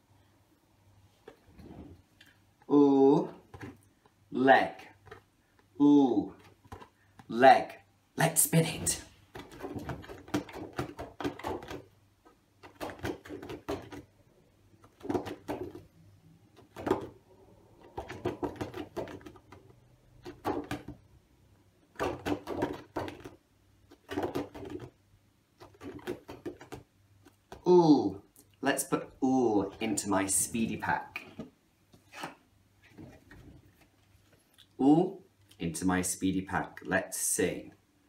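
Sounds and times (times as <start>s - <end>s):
card clicking and rustling: 17.8s - 21.0s, 22.0s - 24.9s, 25.6s - 27.6s.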